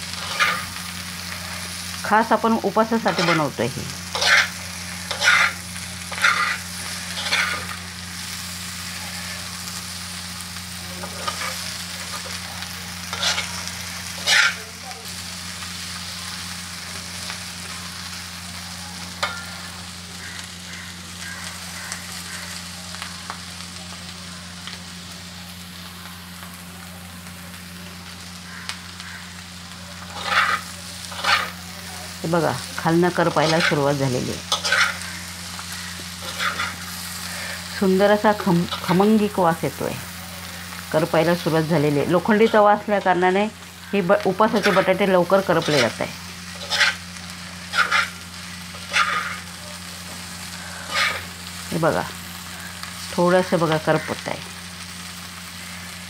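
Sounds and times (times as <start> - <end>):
potatoes sizzling in oil: 0.0 - 56.0
spatula scraping a pan: 0.1 - 1.7, 3.1 - 3.5, 4.1 - 7.8, 11.0 - 12.4, 13.0 - 14.7, 30.0 - 31.6, 33.4 - 33.9, 34.5 - 37.7, 44.4 - 47.0, 47.6 - 51.3.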